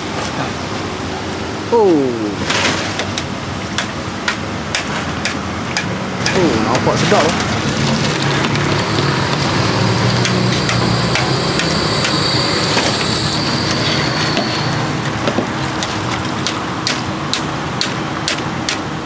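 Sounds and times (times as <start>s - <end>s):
low steady hum: 6.2s - 16.4s
deep-frying oil sizzling: 6.7s - 16.8s.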